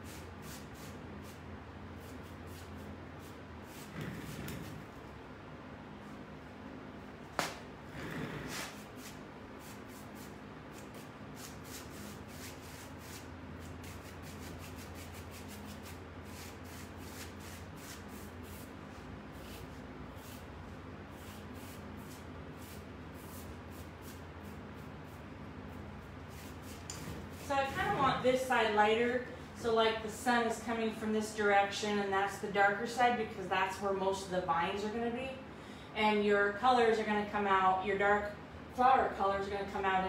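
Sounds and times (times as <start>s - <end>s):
paintbrush swishing on wood: 21.1s - 28.4s.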